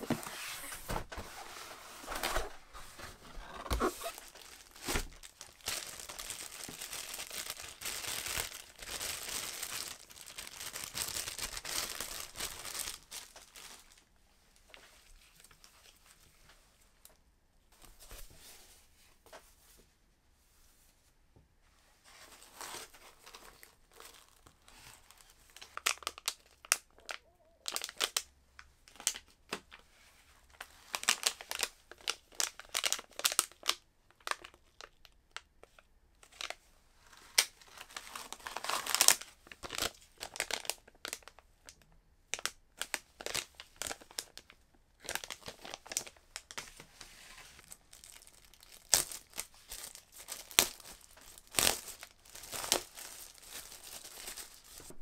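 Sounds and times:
plastic packaging crinkling: 0:02.1 - 0:14.0, 0:22.4 - 0:28.2, 0:30.6 - 0:46.6, 0:47.6 - 0:55.0.

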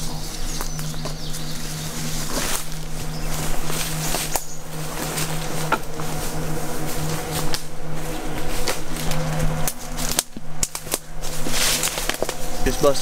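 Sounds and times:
boat motors droning: 0:00.0 - 0:13.0
twigs snapping: 0:07.0 - 0:12.6.

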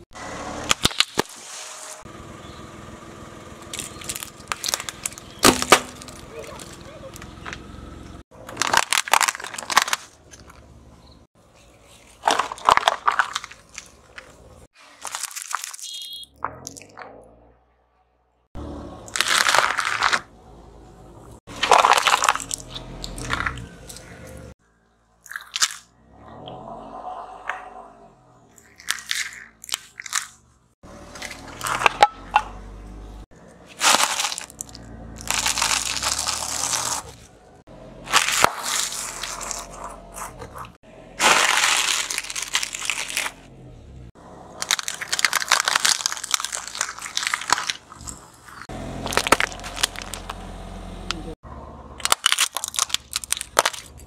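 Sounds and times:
tyre crushing plastic: 0:03.7 - 0:07.6, 0:08.4 - 0:10.6, 0:11.8 - 0:16.0, 0:19.1 - 0:20.3, 0:21.5 - 0:24.2, 0:33.7 - 0:37.3, 0:38.0 - 0:40.6, 0:41.2 - 0:43.5, 0:44.6 - 0:50.5, 0:52.0 - 0:54.0.

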